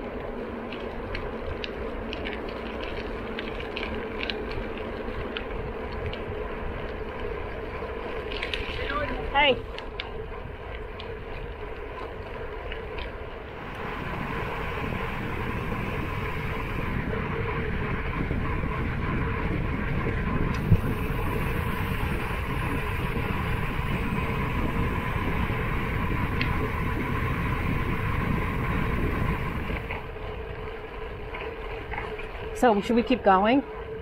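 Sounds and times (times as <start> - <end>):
bicycle tyres on paved road: 0.0 - 34.0
wind on microphone: 13.4 - 33.2.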